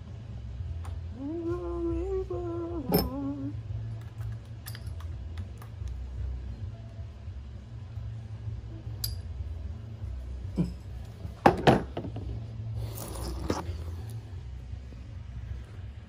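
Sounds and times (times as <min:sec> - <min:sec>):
low steady hum: 0:00.0 - 0:16.0
metallic clicks of screws and parts: 0:04.0 - 0:06.0, 0:09.0 - 0:09.3.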